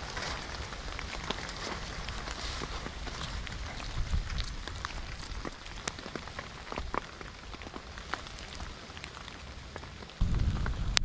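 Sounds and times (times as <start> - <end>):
rain falling: 0.0 - 11.0
raindrops tapping on a surface: 0.6 - 11.0
low rumble: 10.2 - 11.0.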